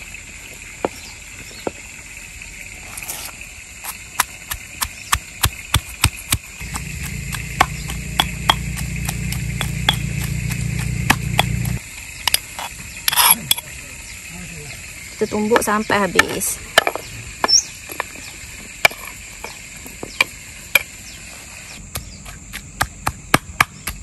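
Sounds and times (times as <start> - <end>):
stone pestle pounding: 4.2 - 13.6, 21.8 - 24.0
low hum: 6.6 - 12.4.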